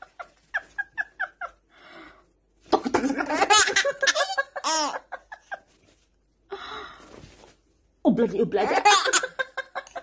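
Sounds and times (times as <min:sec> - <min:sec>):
baby laughing: 0:02.7 - 0:05.5, 0:08.6 - 0:10.0.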